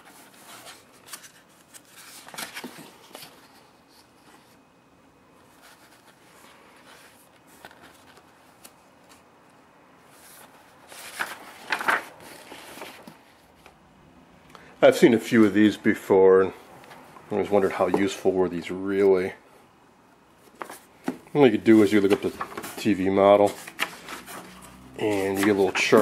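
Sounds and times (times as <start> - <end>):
paper pages rustling and turning: 0.0 - 4.6, 5.4 - 9.3, 10.1 - 13.7, 20.4 - 26.0.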